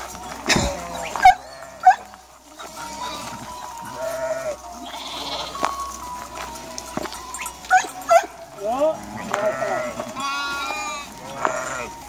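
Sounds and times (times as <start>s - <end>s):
flock of sheep bleating: 0.0s - 12.0s
sharp loud sheep calls: 0.5s - 5.8s, 9.0s - 12.0s.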